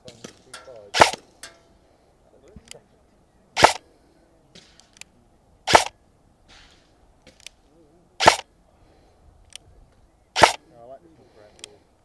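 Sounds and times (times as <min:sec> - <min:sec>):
airsoft rifle shots: 0:00.1 - 0:01.3, 0:03.6 - 0:03.8, 0:05.6 - 0:07.6, 0:08.2 - 0:08.5, 0:10.3 - 0:10.6.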